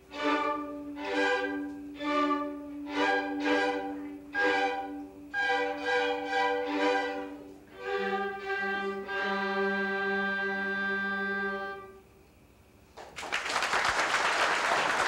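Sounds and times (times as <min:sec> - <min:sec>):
orchestra playing chords: 0:00.0 - 0:12.0.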